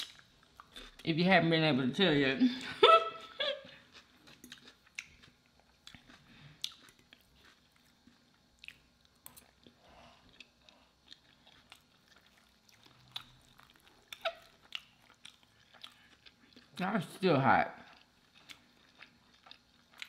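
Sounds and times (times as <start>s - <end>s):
close-up chewing: 3.7s - 16.8s, 17.8s - 20.0s.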